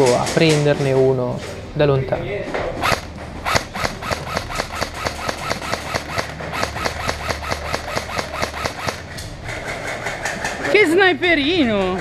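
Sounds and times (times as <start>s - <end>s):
airsoft rifle rapid firing: 2.8s - 9.9s.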